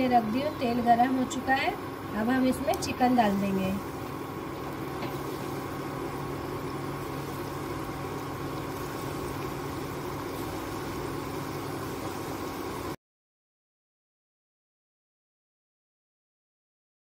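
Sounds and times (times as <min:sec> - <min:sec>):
chicken deep-frying in oil: 0:00.0 - 0:13.0.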